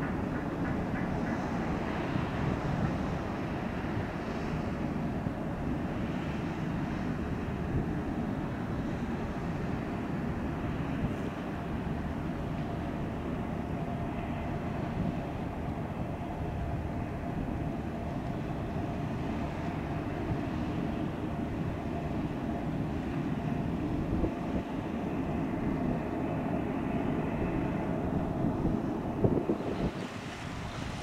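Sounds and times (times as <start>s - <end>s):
diesel engine low rumble: 0.0s - 31.0s
river water: 0.0s - 31.0s
wind: 0.0s - 31.0s.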